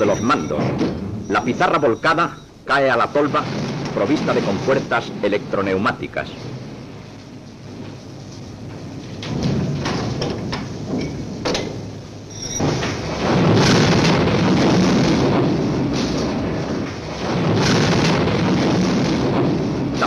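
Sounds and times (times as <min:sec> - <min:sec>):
sharp knocks: 0:08.6 - 0:20.0.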